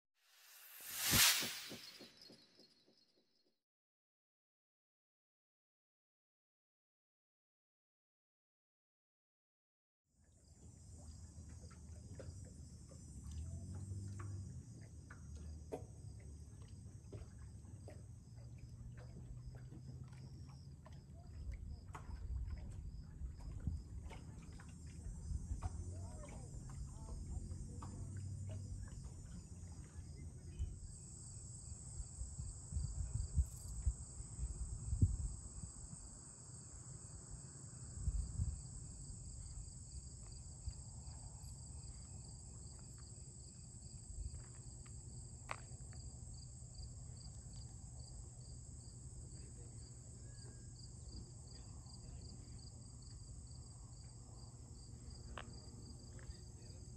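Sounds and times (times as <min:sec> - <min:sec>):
steady high insect buzz: 0:00.3 - 0:02.5, 0:29.2 - 0:56.9
crickets chirping: 0:10.3 - 0:56.9.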